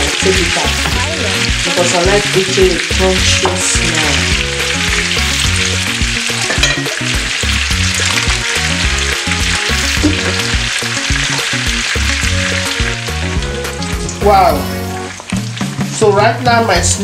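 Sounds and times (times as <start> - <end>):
frying in hot oil sizzling: 0.0 - 17.0.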